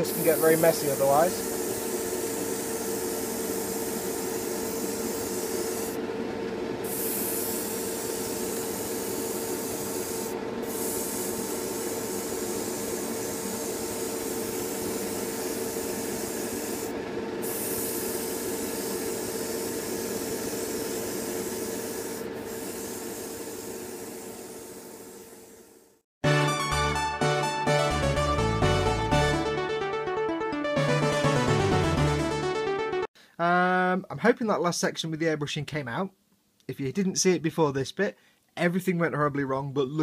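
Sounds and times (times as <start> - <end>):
airbrush hissing: 0.0 - 6.0, 6.8 - 25.8
spray booth and compressor hum: 0.0 - 26.0.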